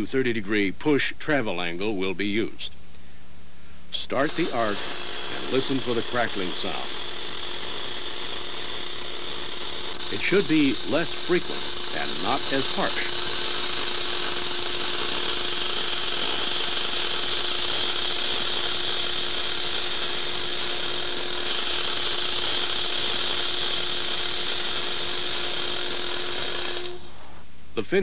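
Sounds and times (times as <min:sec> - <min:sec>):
welding arc crackling: 0:04.0 - 0:27.5.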